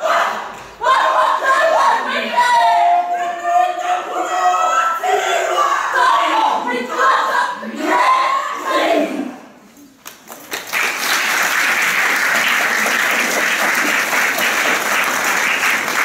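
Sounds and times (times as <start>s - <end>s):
group voices: 0.0s - 9.7s
audience applause: 10.3s - 16.0s.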